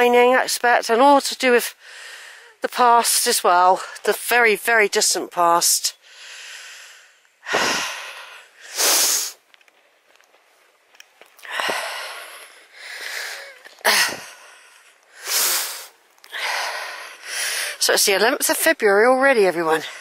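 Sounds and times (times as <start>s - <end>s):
person breathing hard: 1.8s - 2.6s, 6.0s - 9.4s, 11.4s - 17.8s.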